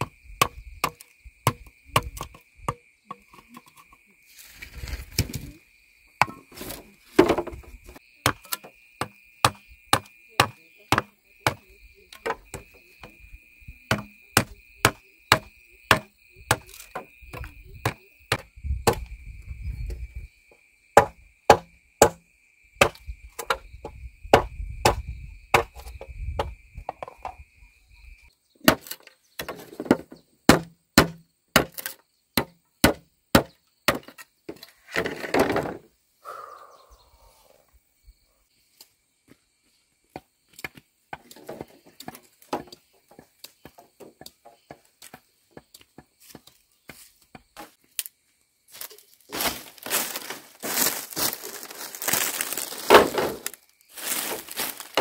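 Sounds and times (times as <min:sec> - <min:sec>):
machete chopping bamboo: 0:00.0 - 0:02.8, 0:08.2 - 0:11.6, 0:13.9 - 0:19.1, 0:21.0 - 0:22.2, 0:22.8 - 0:23.6, 0:24.4 - 0:25.8, 0:28.6 - 0:34.2
high insect buzz: 0:46.9 - 0:55.0.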